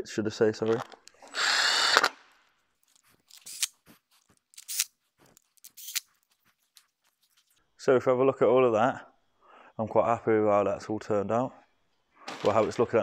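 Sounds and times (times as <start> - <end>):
cordless drill motor whining: 1.3 - 2.1.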